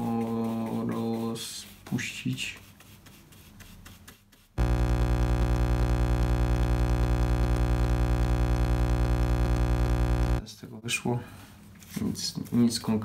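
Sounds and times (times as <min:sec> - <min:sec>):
loud electrical buzz: 0:04.6 - 0:10.4.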